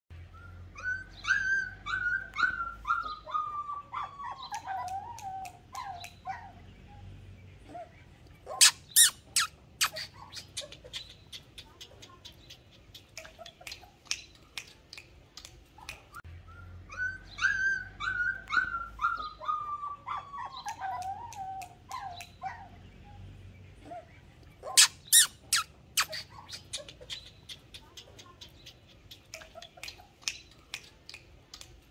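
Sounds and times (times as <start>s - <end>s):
puppies whimpering: 0.4s - 7.0s, 15.8s - 23.2s.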